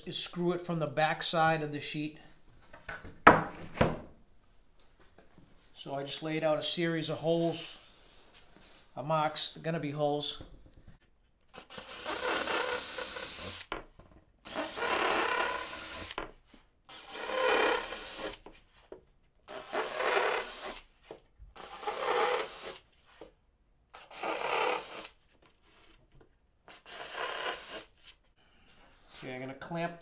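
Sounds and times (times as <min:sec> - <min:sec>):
cordless drill boring through wood: 0:11.6 - 0:13.8, 0:14.4 - 0:16.3, 0:16.9 - 0:18.5, 0:19.5 - 0:20.9, 0:21.6 - 0:22.9, 0:24.0 - 0:25.2, 0:26.7 - 0:28.0.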